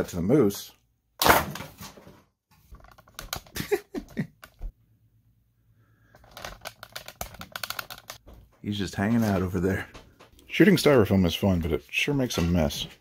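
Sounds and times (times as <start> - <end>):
dart hitting styrofoam block: 1.2 - 2.0.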